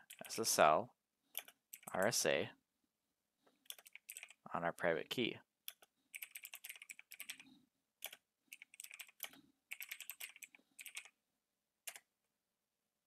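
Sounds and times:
keyboard typing: 0.0 - 0.4, 1.3 - 2.1, 3.6 - 4.4, 5.7 - 7.4, 8.0 - 11.2, 11.8 - 12.1.

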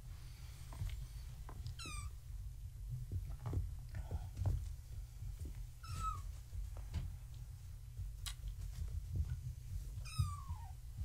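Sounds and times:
steady low rumble: 0.0 - 11.0
kitten mewing: 10.0 - 10.8.

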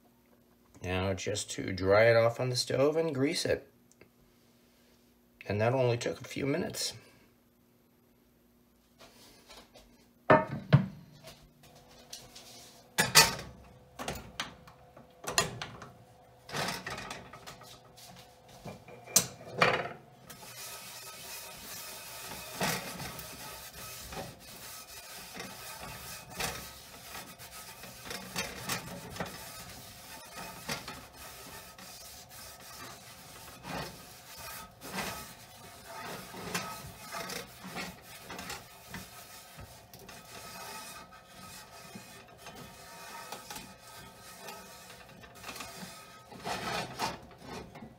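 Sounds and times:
towel rubbing cast iron pan: 20.3 - 47.8.

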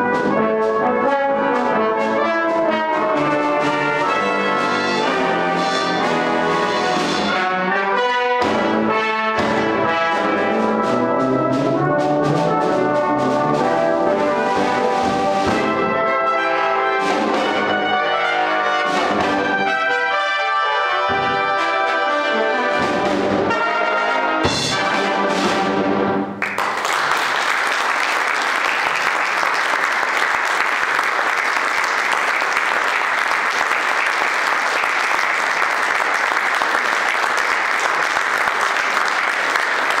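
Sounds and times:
brass band playing a march: 0.0 - 26.4
audience applauding: 26.4 - 40.0.

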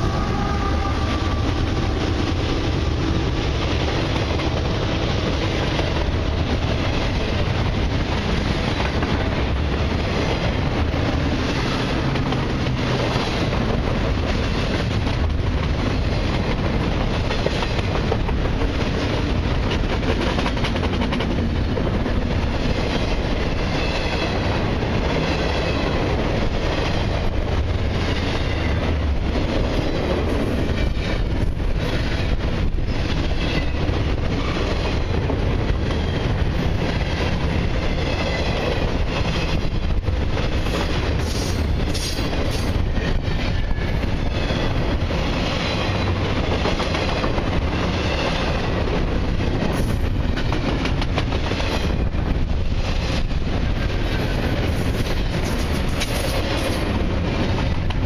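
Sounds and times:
freight train wheels on rails: 0.0 - 58.0.

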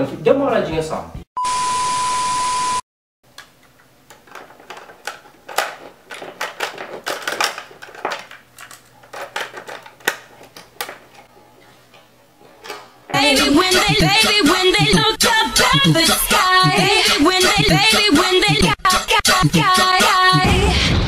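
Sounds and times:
steady beep: 1.4 - 2.8
cassette recorder clicks and rattles: 4.1 - 11.2.

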